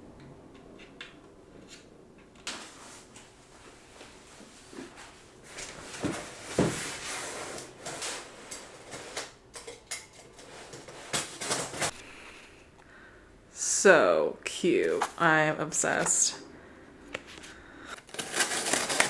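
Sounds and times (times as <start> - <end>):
cardboard scraping and rustling: 4.4 - 9.3, 10.4 - 11.9.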